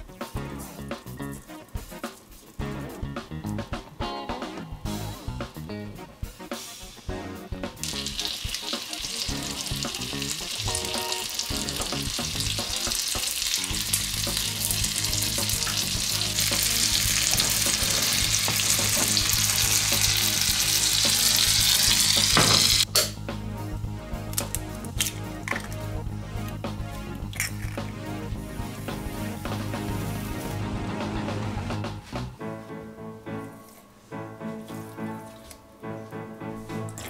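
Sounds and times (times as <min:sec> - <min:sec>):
caramel sizzling in a frying pan: 0:07.9 - 0:22.8.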